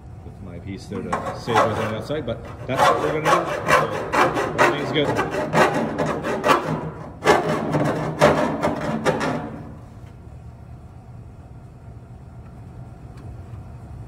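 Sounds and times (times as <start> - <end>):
hand file rasping on metal: 1.0 - 9.7.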